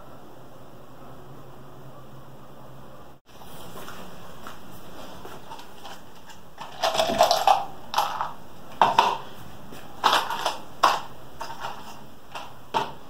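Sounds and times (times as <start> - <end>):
plastic cup crinkling and clattering: 5.3 - 13.0.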